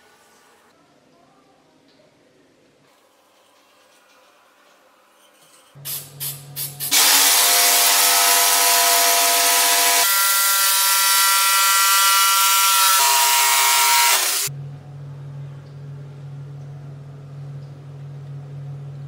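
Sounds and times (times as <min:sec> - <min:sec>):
jigsaw cutting wood: 0:06.9 - 0:14.5.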